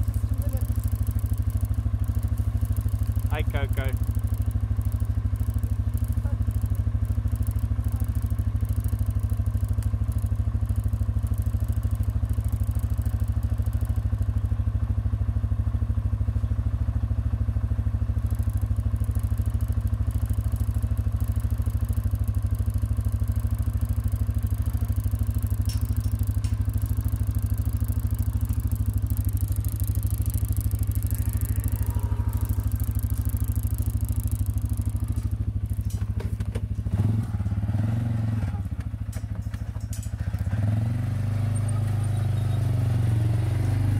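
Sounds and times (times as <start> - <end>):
motorbike engine idling: 0.0 - 43.9.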